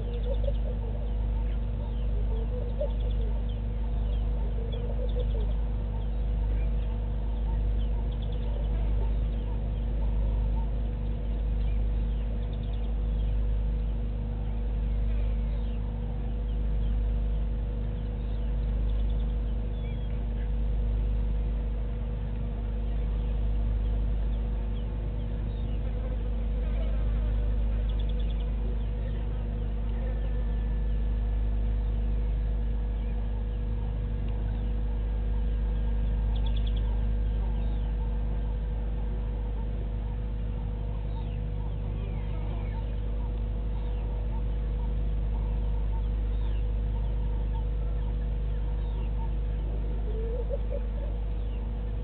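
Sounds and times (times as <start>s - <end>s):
birds chirping: 0.0s - 52.0s
constant hum: 0.0s - 52.0s.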